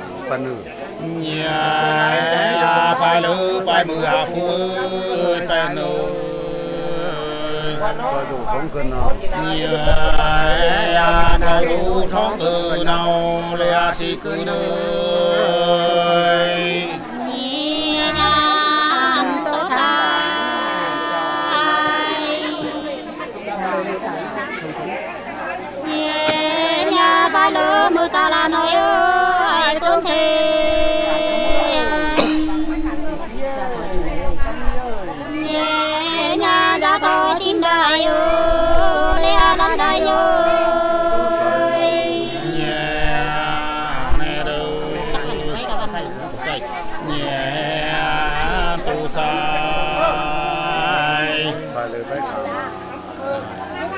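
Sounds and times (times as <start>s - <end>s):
man singing long notes: 1.0s - 8.5s, 9.2s - 23.2s, 25.8s - 53.9s
woman singing: 17.1s - 23.2s, 25.8s - 33.8s, 35.4s - 42.6s.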